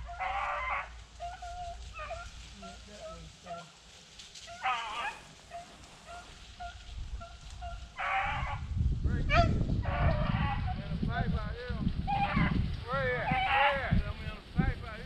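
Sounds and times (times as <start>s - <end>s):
dog baying: 0.0s - 3.8s, 4.4s - 8.6s
dogs barking in the distance: 0.0s - 10.8s, 12.0s - 12.6s.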